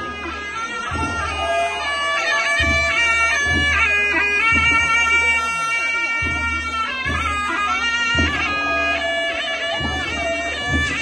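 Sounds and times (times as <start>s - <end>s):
low drum beating: 0.0s - 5.0s, 9.7s - 11.0s
double-reed pipe playing folk melody: 0.0s - 11.0s.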